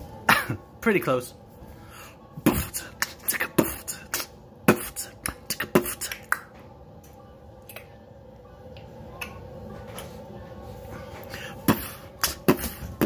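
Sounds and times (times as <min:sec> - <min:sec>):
beatboxing pops and hisses: 0:02.5 - 0:06.4, 0:11.7 - 0:12.8.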